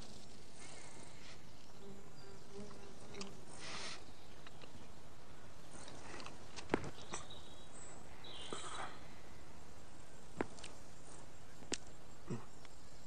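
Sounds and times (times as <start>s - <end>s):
steady hiss: 0.0s - 13.0s
high bird chirp: 6.9s - 8.8s.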